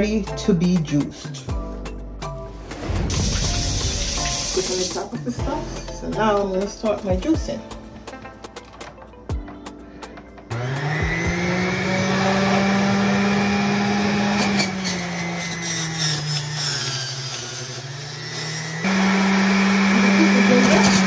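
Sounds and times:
juicer motor whining: 10.5s - 21.0s.

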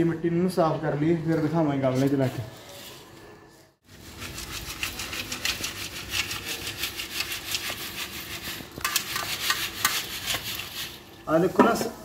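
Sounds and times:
grit rasping on metal sieve: 3.9s - 11.1s.

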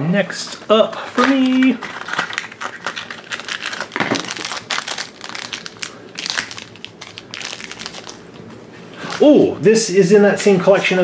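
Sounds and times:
foil bag crinkling: 0.4s - 8.3s.

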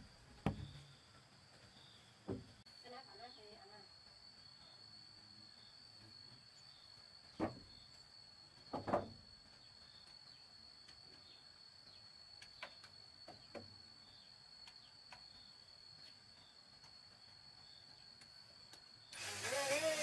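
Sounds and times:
insects chirring: 0.0s - 20.0s.

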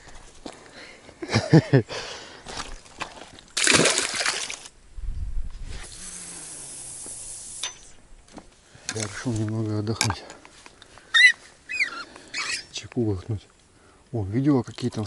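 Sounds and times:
fish splashing into water: 2.7s - 4.7s
short vocal sound: 5.8s - 7.5s.

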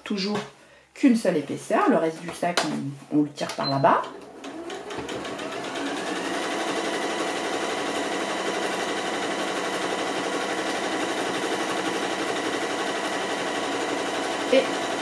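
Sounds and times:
sewing machine stitching: 3.7s - 15.0s.

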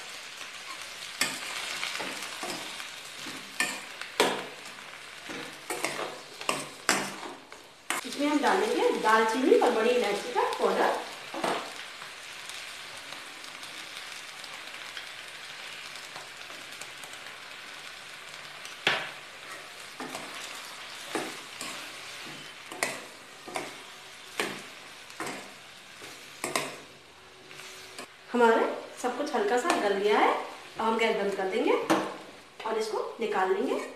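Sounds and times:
vegetables sizzling in a pan: 0.0s - 33.9s
spoon stirring and knocking pan: 0.7s - 9.0s, 18.8s - 26.9s.

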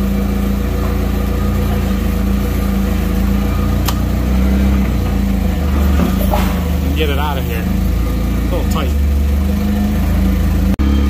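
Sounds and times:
forklift engine running: 0.0s - 11.0s
sharp metallic click: 3.8s - 4.0s.

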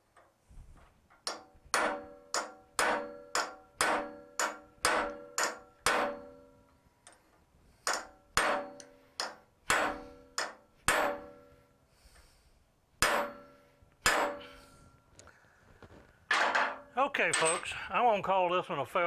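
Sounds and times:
hammer striking metal: 1.2s - 6.6s, 7.8s - 11.6s, 13.0s - 14.7s, 16.3s - 17.7s.

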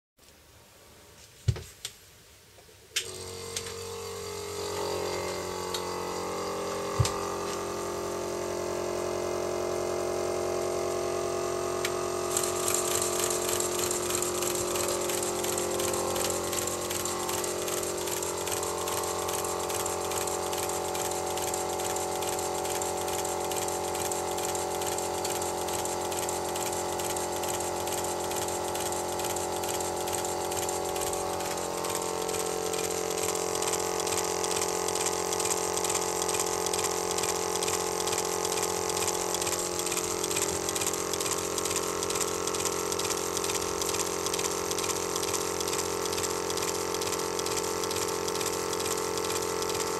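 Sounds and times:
model locomotive running hiss: 12.0s - 49.9s.

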